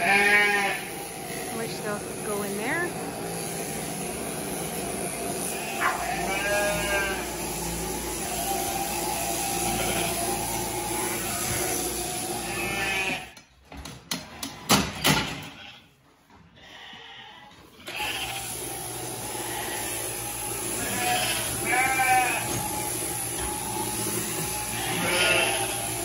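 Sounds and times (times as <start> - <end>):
sheep bleating: 0.0 - 1.1, 5.4 - 7.5, 9.6 - 10.5, 12.3 - 13.4, 16.6 - 18.4, 20.7 - 22.7, 24.6 - 26.0.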